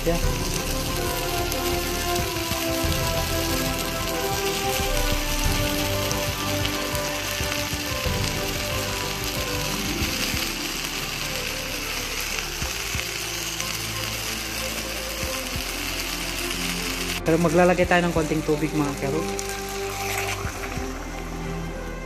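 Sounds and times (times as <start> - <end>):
background music: 0.0 - 22.0
oil sizzling in a wok: 0.0 - 22.0.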